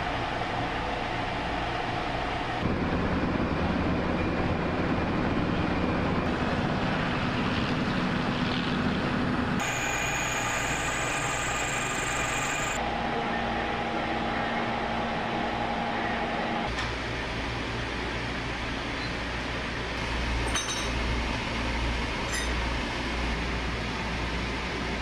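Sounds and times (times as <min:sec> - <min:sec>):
machinery low drone: 0:00.0 - 0:25.0
motor hum: 0:09.6 - 0:12.9
milling machine whine: 0:09.6 - 0:16.7.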